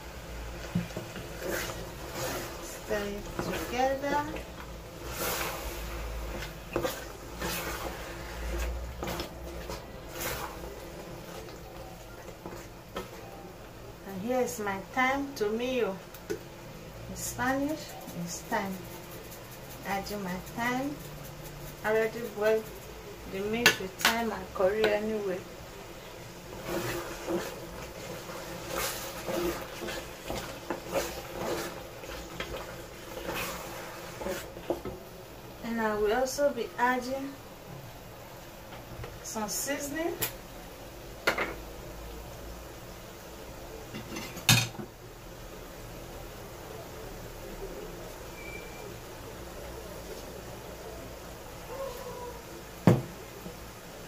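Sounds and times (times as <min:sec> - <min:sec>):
spatula scraping in pot: 0:00.6 - 0:11.6, 0:12.2 - 0:13.2, 0:17.2 - 0:25.1, 0:26.4 - 0:35.0.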